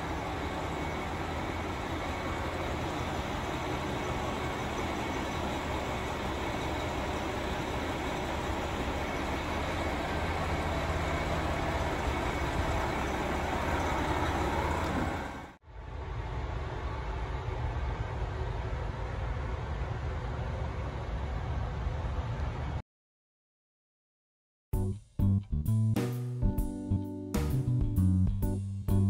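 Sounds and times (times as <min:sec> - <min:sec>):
dull hum inside train: 0:00.0 - 0:22.8
electric train hum and whir: 0:00.0 - 0:22.8.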